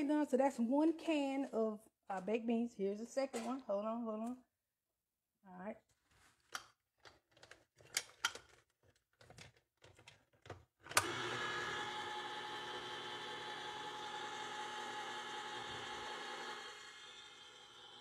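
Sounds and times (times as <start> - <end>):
can opener motor whirring: 10.9 - 18.0.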